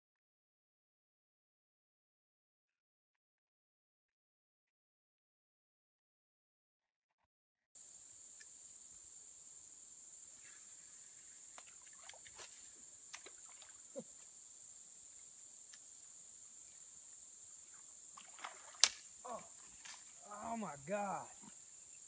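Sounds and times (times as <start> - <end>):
insect chorus drone: 7.8 - 22.0.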